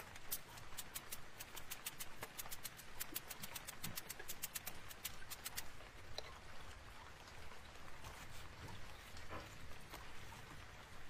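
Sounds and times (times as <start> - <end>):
spray bottle spritzing: 0.0 - 5.6.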